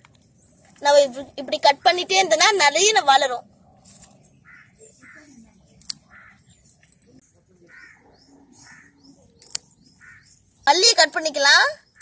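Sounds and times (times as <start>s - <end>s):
small birds chirping: 0.0s - 12.0s
crows cawing: 4.4s - 5.4s, 6.0s - 6.5s, 7.7s - 9.1s, 10.0s - 10.4s.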